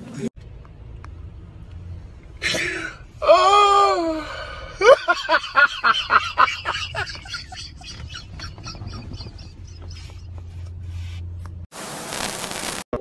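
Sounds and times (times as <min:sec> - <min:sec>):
person exhaling: 0:02.4 - 0:04.8
person laughing: 0:04.7 - 0:10.4.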